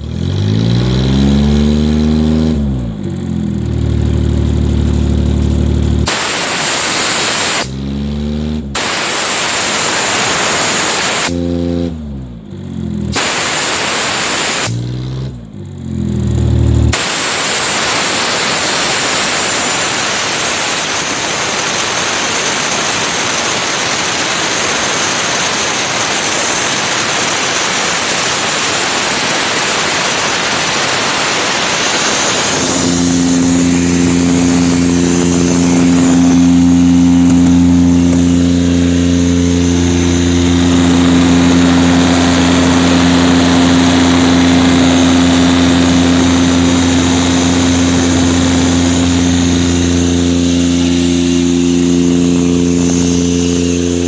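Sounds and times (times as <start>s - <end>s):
diesel engine humming: 0.0s - 54.0s
compressed air hissing: 6.1s - 7.8s, 8.8s - 11.4s, 13.1s - 14.8s, 16.9s - 42.8s.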